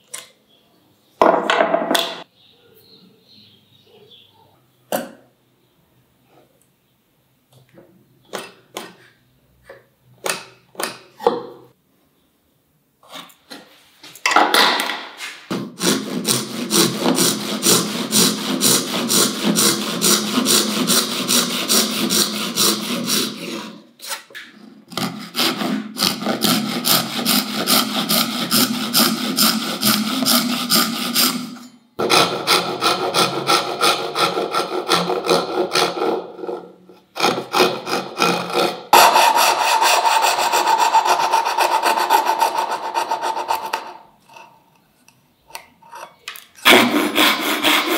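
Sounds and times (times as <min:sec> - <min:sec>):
backsaw cutting wood: 0:15.8 - 0:23.8, 0:24.9 - 0:44.0, 0:46.6 - 0:47.9
pencil scratching: 0:15.8 - 0:24.3, 0:24.9 - 0:31.5, 0:37.3 - 0:43.9, 0:46.6 - 0:47.9.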